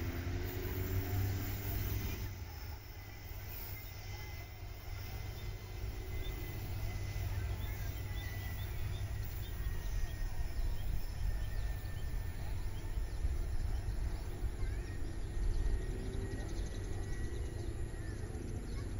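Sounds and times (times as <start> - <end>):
faint bird chirps: 0.8 - 18.9.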